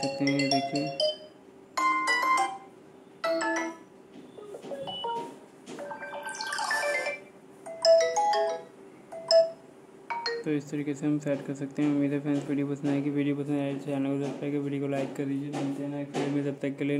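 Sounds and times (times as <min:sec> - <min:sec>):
phone ringtone chimes and melody: 0:00.0 - 0:03.9, 0:04.6 - 0:10.5.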